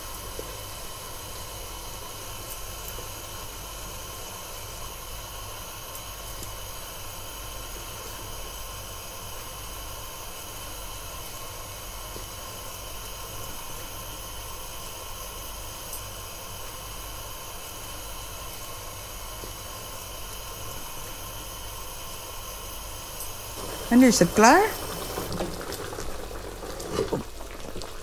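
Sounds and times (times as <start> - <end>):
frying pan hissing: 14.1 - 28.0.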